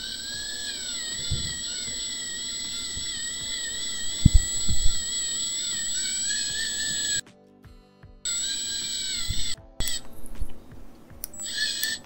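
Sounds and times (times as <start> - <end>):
electric dental driver whining: 0.0 - 7.2, 8.3 - 10.6, 11.2 - 12.0
sharp low thumps: 3.0 - 5.1.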